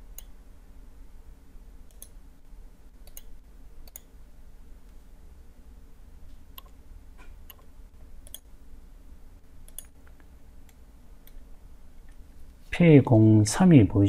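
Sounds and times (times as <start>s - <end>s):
faint low hum: 0.0s - 14.0s
computer mouse buttons clicking: 1.9s - 2.2s, 3.0s - 4.1s, 6.5s - 6.8s, 7.4s - 8.5s, 9.6s - 11.4s.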